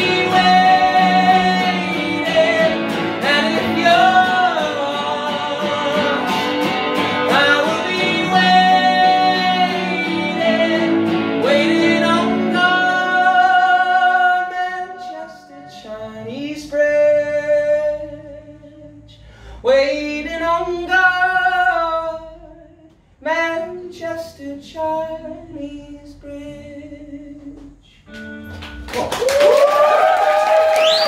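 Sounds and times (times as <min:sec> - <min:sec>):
electric guitar: 0:00.0 - 0:16.8, 0:27.4 - 0:31.0
man singing long held notes: 0:00.0 - 0:28.0.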